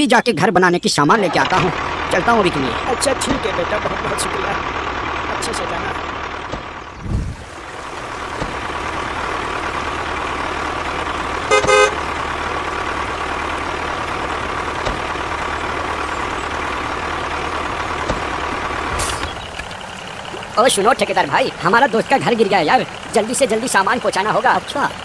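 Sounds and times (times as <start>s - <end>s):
tractor engine running: 1.1s - 25.0s
short horn toot: 11.5s - 12.0s.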